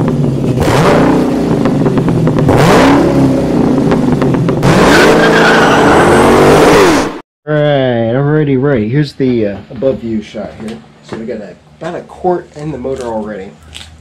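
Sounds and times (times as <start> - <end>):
car engine revving: 0.0 - 7.2
high squeal: 4.9 - 7.0.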